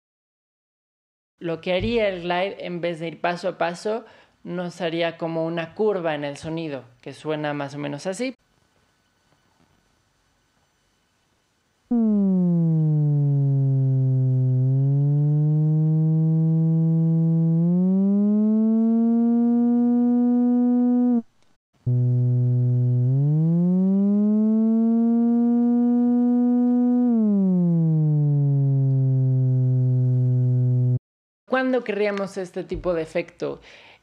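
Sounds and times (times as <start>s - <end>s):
synthesizer notes sliding in pitch: 11.9s - 21.3s, 21.9s - 31.0s.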